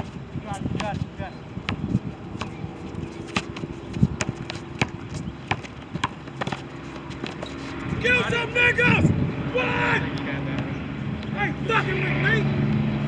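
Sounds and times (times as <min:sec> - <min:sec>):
basketball bouncing on asphalt: 0:00.0 - 0:07.6
footsteps and sneaker scuffs: 0:01.7 - 0:08.0.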